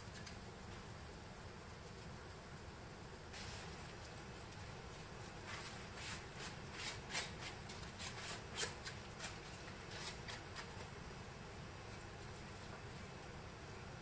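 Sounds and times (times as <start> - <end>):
cloth rubbing on plastic: 5.0 - 10.9.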